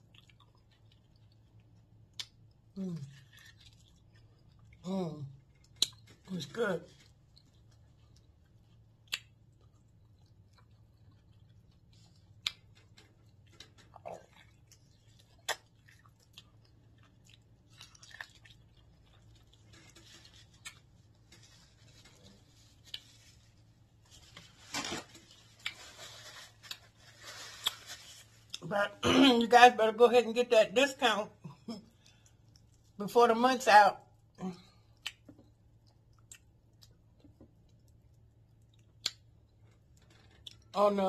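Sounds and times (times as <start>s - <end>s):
chewing corn on the cob: 0.0s - 6.3s, 6.9s - 23.6s, 34.9s - 40.8s
faint low hum: 0.0s - 41.0s.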